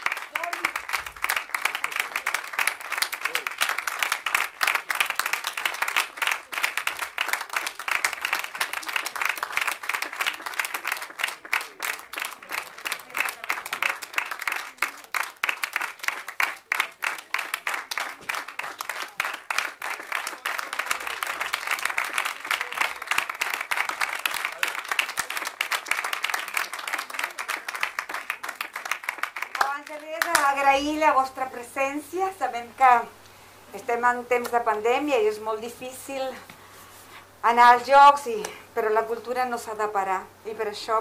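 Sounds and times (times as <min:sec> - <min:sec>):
audience applauding: 0:00.0 - 0:31.0.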